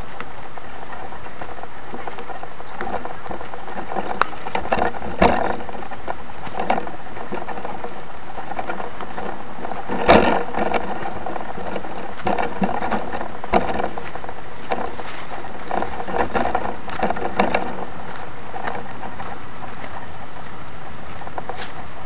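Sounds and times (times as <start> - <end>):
bike rolling over dirt trail: 0.0 - 22.0
camera rattling: 0.8 - 22.0.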